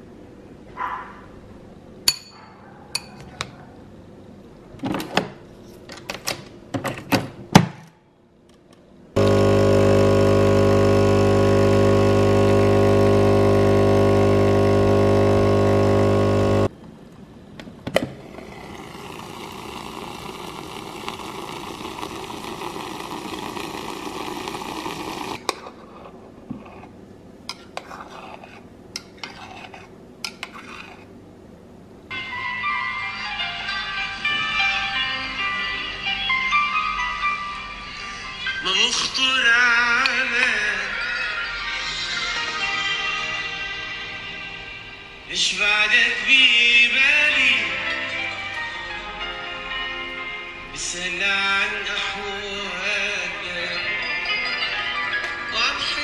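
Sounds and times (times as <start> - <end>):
espresso machine pump humming: 9.2 - 16.7, 18.2 - 25.4
milk frother whirring: 9.2 - 16.7, 18.2 - 25.4.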